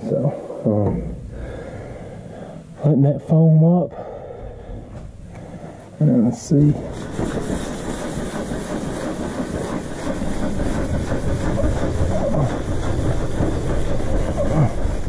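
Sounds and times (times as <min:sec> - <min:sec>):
sponge pad scrubbing: 0:06.1 - 0:15.0.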